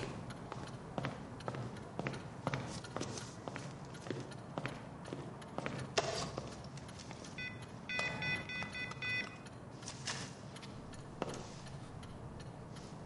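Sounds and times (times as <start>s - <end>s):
phone keypad beeps: 7.4s - 9.6s.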